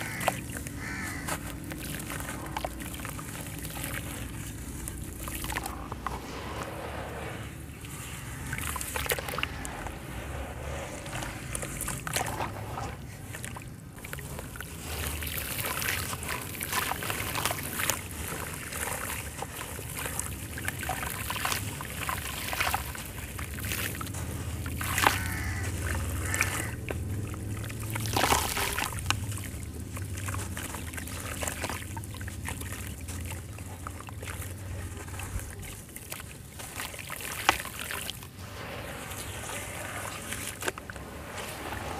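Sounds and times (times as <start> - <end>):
sharp crunches or splashes: 0.0 - 41.9
water sloshing and trickling: 0.0 - 41.9
gritty crackling of crumbling chunks: 22.6 - 32.4.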